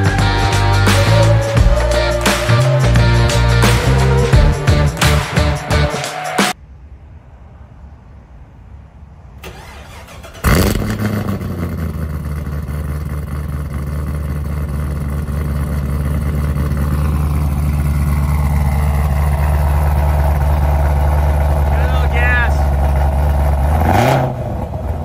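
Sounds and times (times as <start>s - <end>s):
car engine revving and idling: 9.4s - 25.0s.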